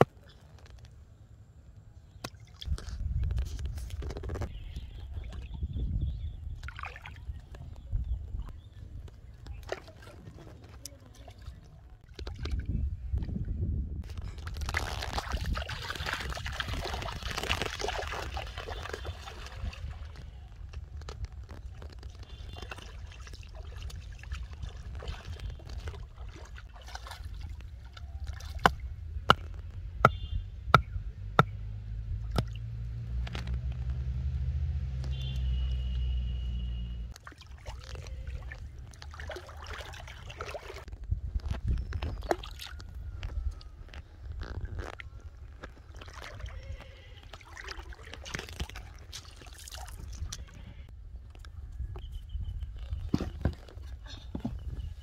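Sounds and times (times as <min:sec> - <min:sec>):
water splashing and trickling: 0:02.1 - 0:29.6, 0:32.0 - 0:51.6
wooden mallet striking stake: 0:28.6 - 0:31.6.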